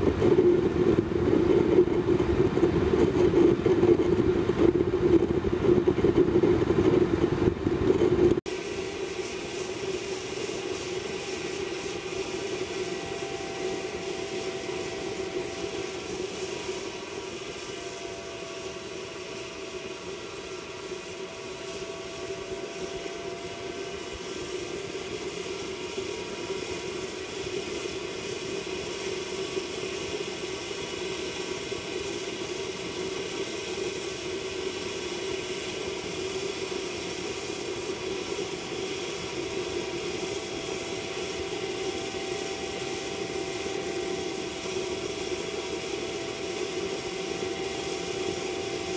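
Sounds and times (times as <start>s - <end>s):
stove burner rushing: 0.0s - 30.4s, 33.2s - 48.9s
faint wavering tone: 8.8s - 26.6s.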